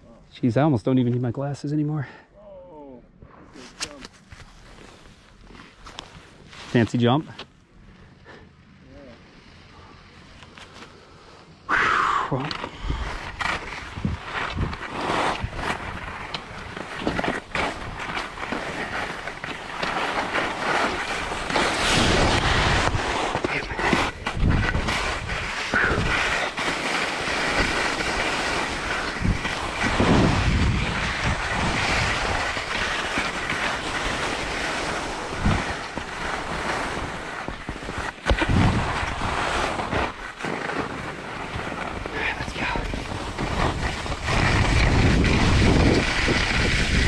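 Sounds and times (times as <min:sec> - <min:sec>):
skis scraping over snow: 0:03.5 - 0:07.5, 0:12.3 - 0:47.0
wind rumbling on microphone: 0:12.2 - 0:47.0.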